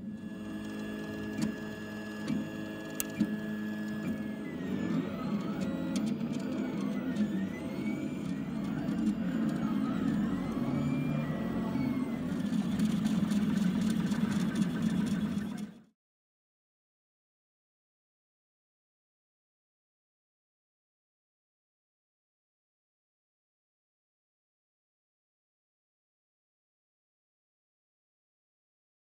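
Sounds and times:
printer stepper motors whining: 0.0 - 15.9.

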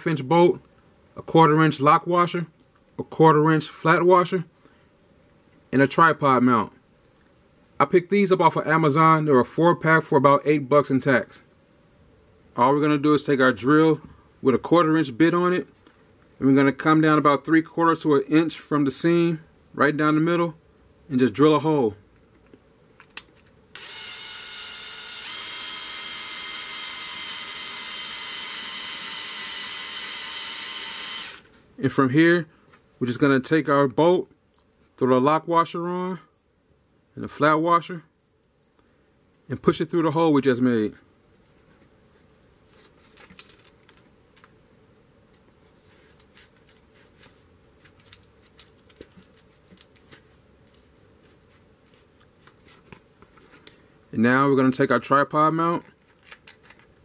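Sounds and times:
drill click: 23.8 - 31.4
drill motor whining: 23.8 - 31.5.

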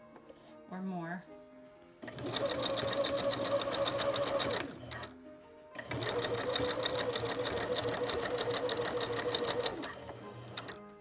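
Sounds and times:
sewing machine stitching: 2.0 - 5.1, 5.8 - 10.9.

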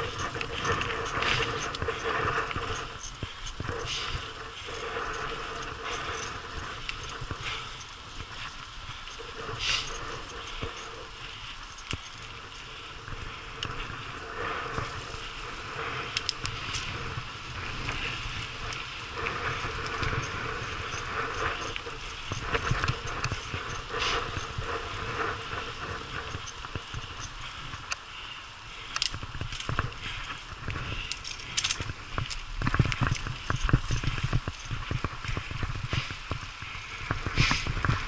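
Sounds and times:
mountain bike rattling: 0.0 - 38.0.

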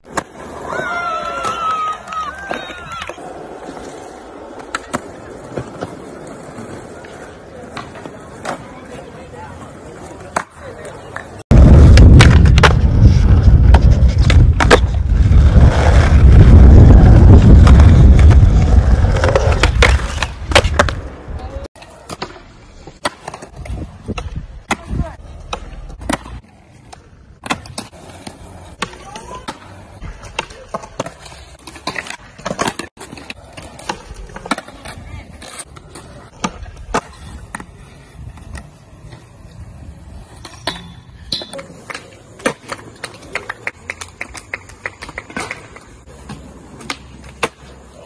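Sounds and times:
skateboard rolling on smooth concrete: 0.0 - 48.0
skateboard wheels rolling on pavement: 0.0 - 48.0
skateboard tail popping and landing: 10.2 - 39.4, 40.1 - 47.9.

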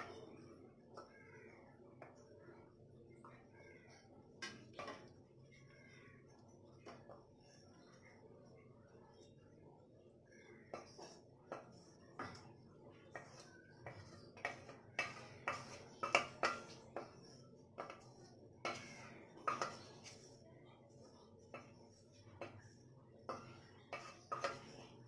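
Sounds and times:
spatula scraping a steel pan: 13.1 - 20.4, 21.5 - 25.0.

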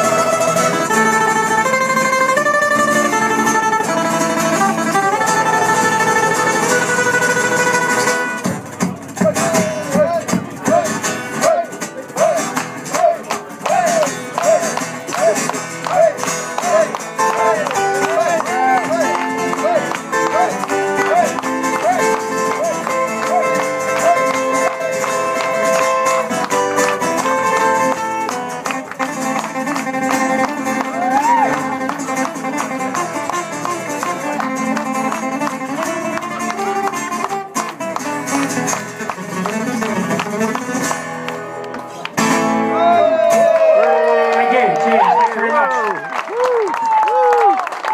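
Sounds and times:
acoustic guitars playing: 0.0 - 46.1
voices: 9.1 - 25.8.

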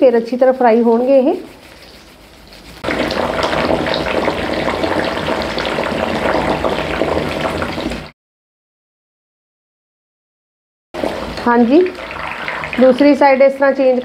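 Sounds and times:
oil sizzling and crackling: 0.3 - 8.1, 11.0 - 14.0.

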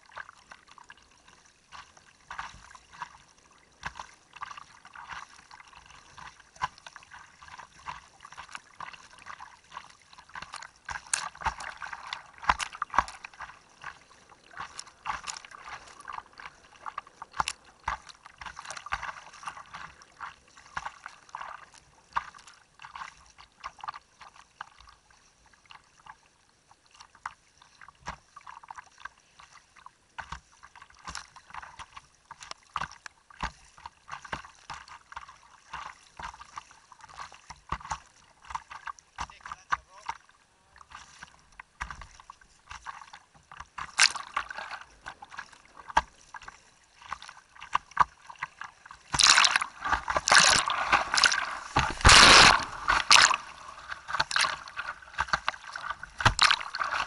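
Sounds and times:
water slapping kayak hull: 0.0 - 57.0
sharp water splashes: 3.8 - 23.0, 40.9 - 57.0
river water rushing: 49.1 - 57.0.

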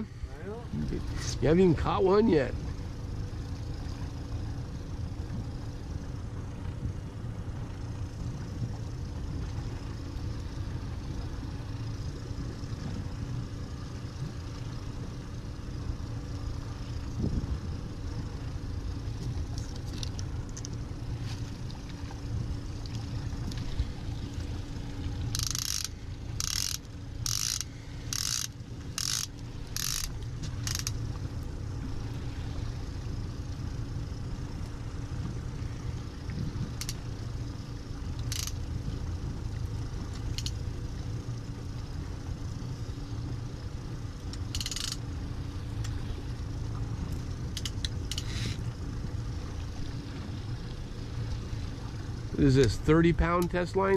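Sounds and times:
outboard motor running: 0.0 - 53.9
short ratchet-like buzzes: 25.3 - 31.0, 38.2 - 38.7, 40.3 - 40.6, 44.3 - 45.1, 47.5 - 48.6.

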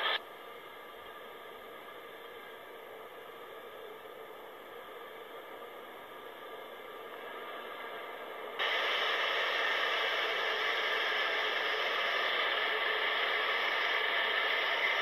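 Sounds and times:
freight train passing: 6.3 - 15.0.

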